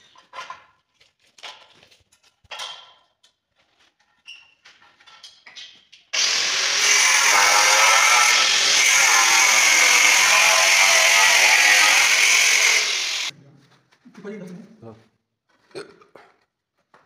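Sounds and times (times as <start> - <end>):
angle grinder cutting tile: 6.2 - 13.3.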